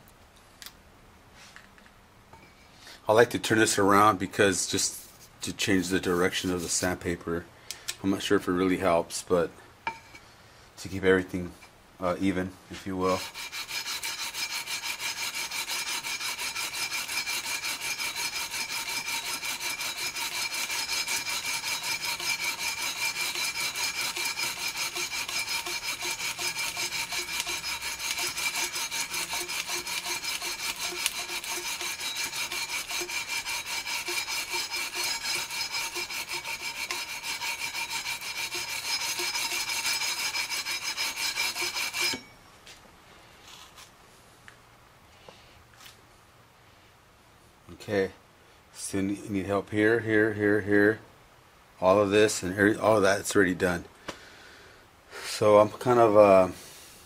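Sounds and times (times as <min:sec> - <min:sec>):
sandpaper sanding metal frets: 0:12.8 - 0:42.2.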